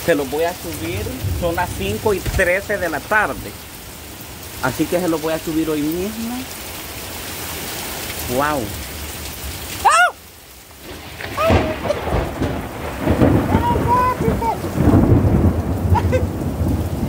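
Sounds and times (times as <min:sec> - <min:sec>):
thunder rumbling: 0:00.0 - 0:05.9, 0:10.8 - 0:17.0
heavy rain: 0:00.0 - 0:17.0.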